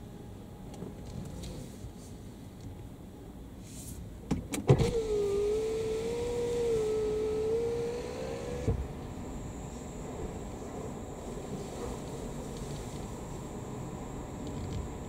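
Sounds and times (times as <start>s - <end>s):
electric motor whining: 4.9s - 11.3s.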